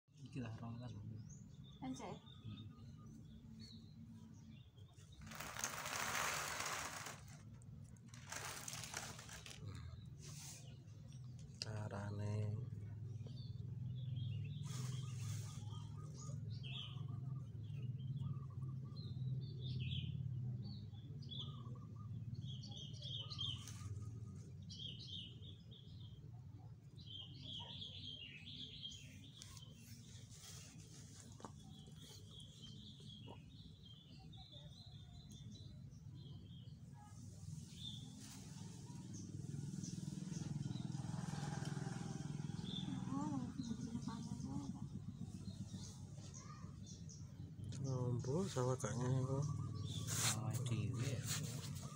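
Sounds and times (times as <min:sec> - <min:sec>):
small birds chirping: 0:00.2 - 0:51.9.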